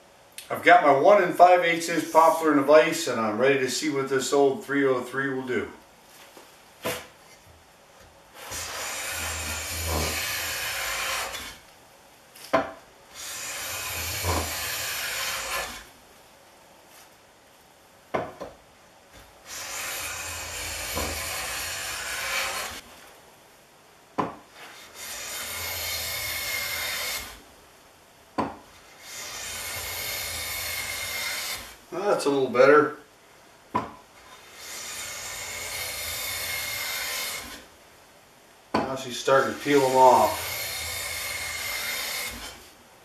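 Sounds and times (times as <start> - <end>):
hand plane rasping on wood: 8.4 - 11.6, 13.1 - 15.9, 19.5 - 22.8, 24.6 - 27.4, 28.8 - 31.8, 34.3 - 37.6, 39.2 - 42.6
sharp knocks: 18.1 - 18.6, 28.4 - 28.6, 33.7 - 34.0.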